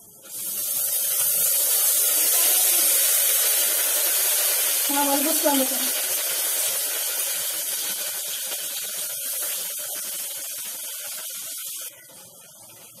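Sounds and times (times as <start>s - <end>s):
food frying in oil: 0.0s - 13.0s.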